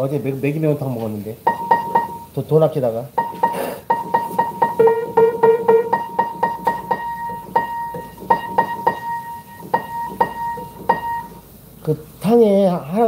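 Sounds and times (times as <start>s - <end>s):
piano note struck repeatedly: 1.5s - 2.4s, 3.2s - 11.4s.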